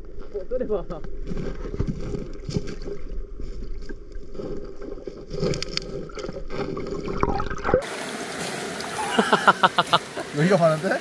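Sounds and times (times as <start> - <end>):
water sloshing and splashing: 1.3 - 9.0.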